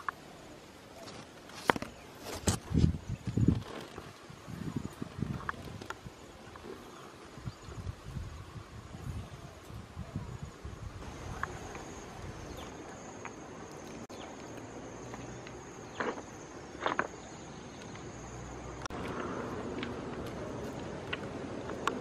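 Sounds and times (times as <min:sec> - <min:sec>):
insect high-pitched trill: 0:02.2 - 0:19.6.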